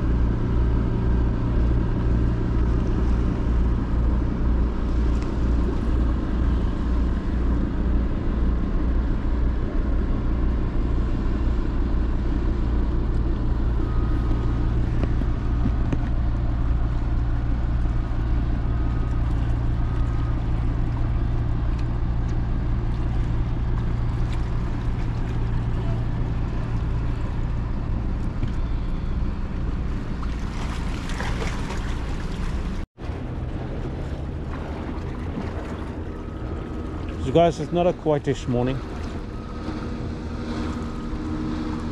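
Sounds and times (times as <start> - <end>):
ship engines droning: 0.0 - 41.9.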